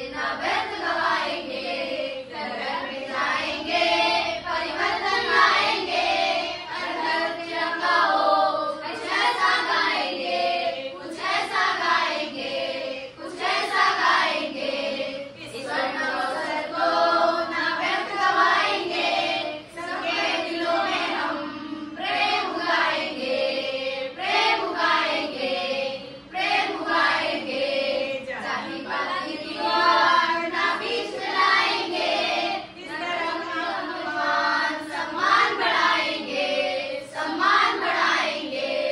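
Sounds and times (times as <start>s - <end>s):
children and women singing choir: 0.0s - 38.9s.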